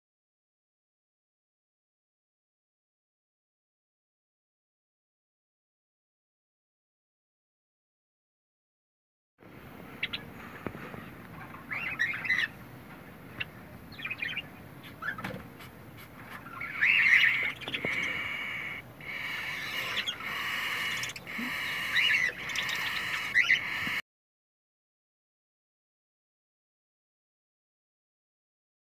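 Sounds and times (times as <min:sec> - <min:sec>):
chicks buzzy begging calls: 0:16.4 - 0:24.0.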